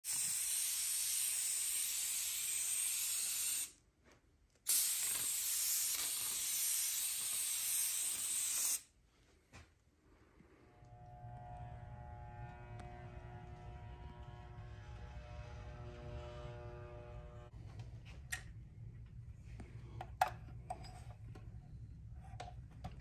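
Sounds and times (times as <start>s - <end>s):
aerosol spray can hissing: 0.0s - 3.8s, 4.7s - 8.9s.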